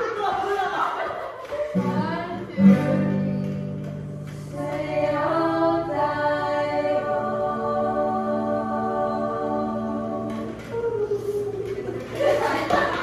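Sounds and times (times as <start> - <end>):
woman singing: 1.5 - 3.8, 4.4 - 12.0
ukulele strummed: 1.6 - 5.2
acoustic guitars strummed: 1.8 - 5.9.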